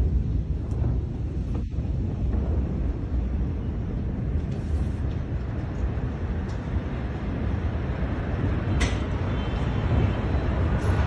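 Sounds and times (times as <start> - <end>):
deep explosion rumble: 0.0 - 8.7.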